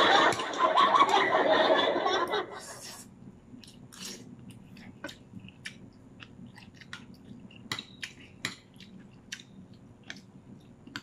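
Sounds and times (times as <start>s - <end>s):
chewing food: 3.5s - 11.0s.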